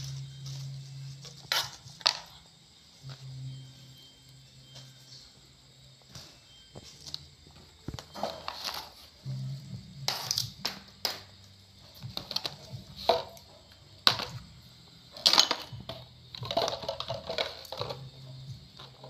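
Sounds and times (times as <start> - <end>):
plastic kitchenware clicking: 16.4 - 18.0.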